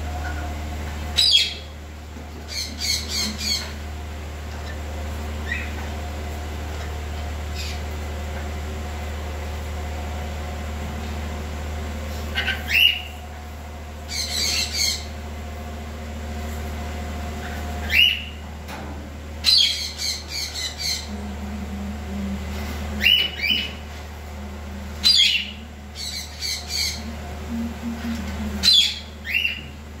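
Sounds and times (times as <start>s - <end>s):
steady low hum: 0.0s - 30.0s
lorikeets squawking: 14.1s - 15.1s, 25.0s - 27.1s.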